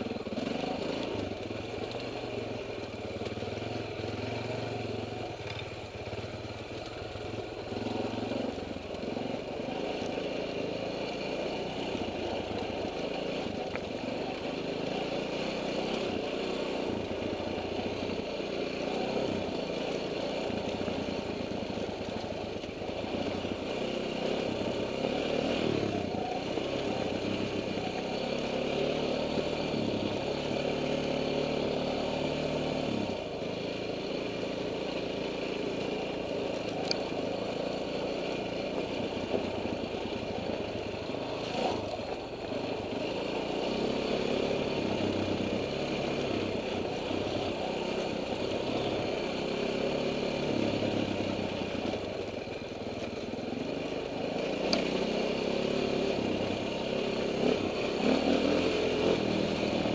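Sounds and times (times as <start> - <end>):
dirt bike engine revving: 22.8 - 52.1, 53.6 - 59.9.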